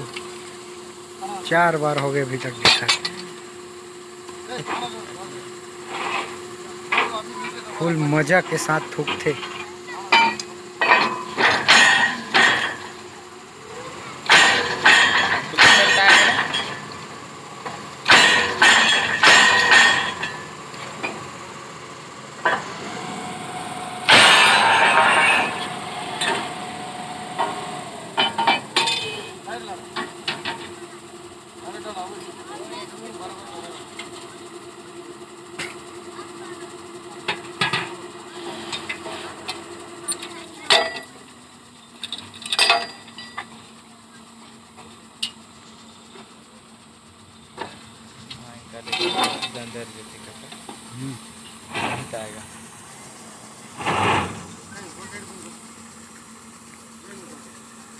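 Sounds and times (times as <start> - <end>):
engine running steadily: 0.0 - 57.9
metal clanks on steel pipe: 8.4 - 13.0, 14.2 - 16.9, 18.0 - 21.2, 42.1 - 43.5.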